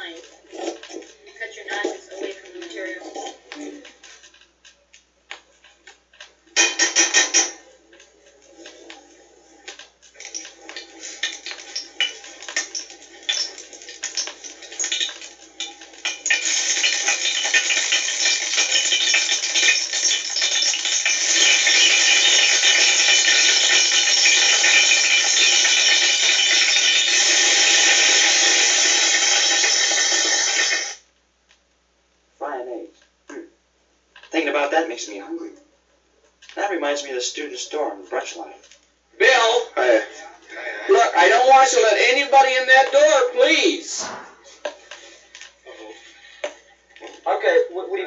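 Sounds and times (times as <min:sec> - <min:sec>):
typewriters clacking: 0:06.2 - 0:07.6, 0:09.6 - 0:31.0.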